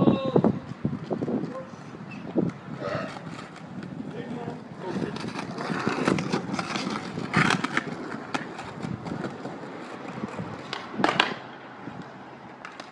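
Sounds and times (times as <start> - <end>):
skateboard wheels rolling on paving: 0.0 - 12.9
sharp skateboard knocks: 10.6 - 11.5, 12.6 - 12.9.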